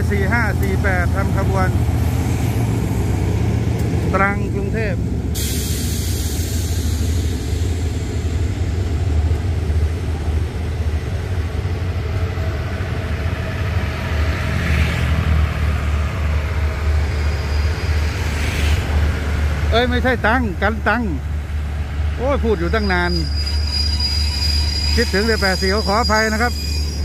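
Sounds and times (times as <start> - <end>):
locomotive engine humming: 0.0 - 27.0.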